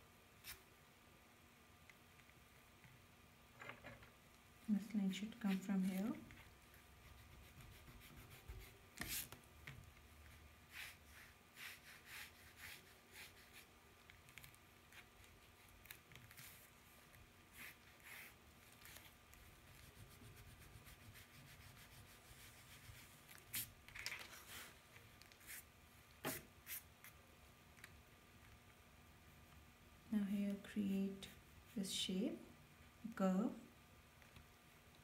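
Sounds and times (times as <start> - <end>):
pencil scratching on paper: 5.5 - 9.4, 10.7 - 13.7, 17.5 - 23.7.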